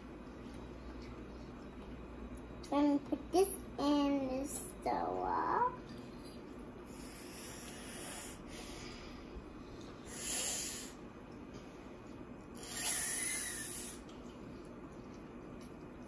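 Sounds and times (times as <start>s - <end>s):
child breathing through nose: 6.9s - 9.2s, 10.1s - 11.0s, 12.6s - 14.0s.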